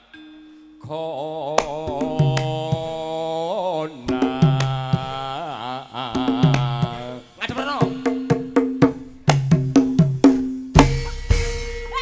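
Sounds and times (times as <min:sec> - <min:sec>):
gamelan ensemble: 0:00.0 - 0:01.0
person singing long notes: 0:00.8 - 0:08.6
sharp drum strokes: 0:01.6 - 0:03.4, 0:04.0 - 0:12.0.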